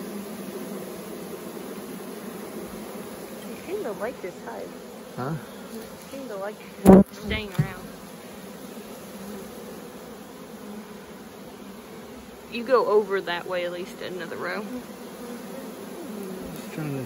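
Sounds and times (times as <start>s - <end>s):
bee swarm buzzing: 0.0s - 17.0s
sharp knock: 6.9s - 7.9s.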